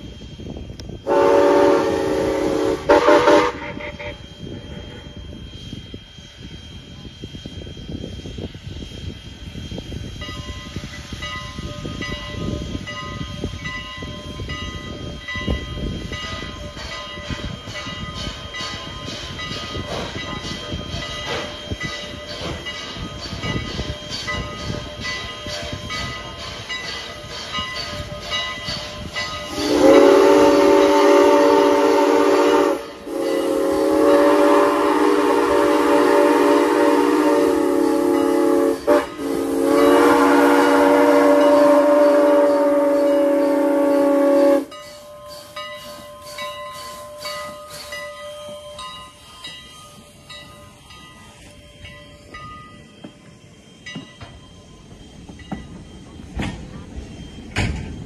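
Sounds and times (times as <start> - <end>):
steam locomotive chuffing: 0.0 - 58.0
steam whistle blasts: 1.0 - 5.2, 29.5 - 45.6
train wheels clicking over rails: 7.9 - 58.0.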